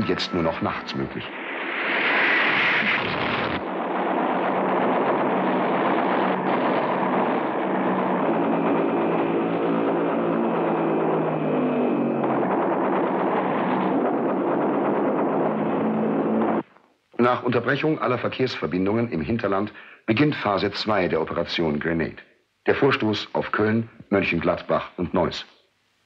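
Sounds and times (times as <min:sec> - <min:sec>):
noisy blast: 0:00.0 - 0:16.7
piston aircraft engine drone: 0:00.0 - 0:16.7.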